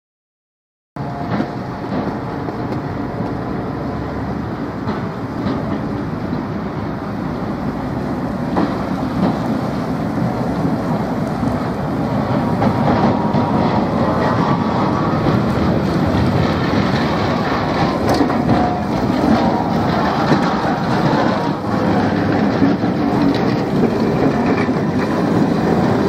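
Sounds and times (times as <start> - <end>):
tram wheels rumbling on rails: 1.0 - 26.0
sharp clicks of wheels: 8.5 - 26.0.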